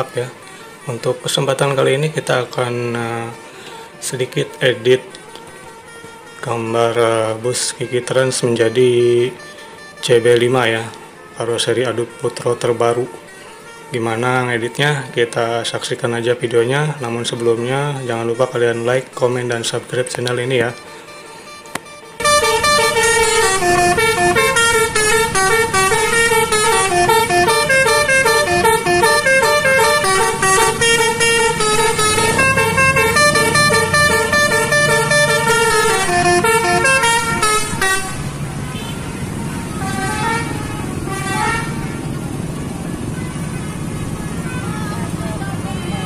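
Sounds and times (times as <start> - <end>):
multi-tone air horn melody: 0.0 - 16.0, 16.9 - 46.0
bus engine rumble: 0.0 - 46.0
traffic: 0.0 - 46.0.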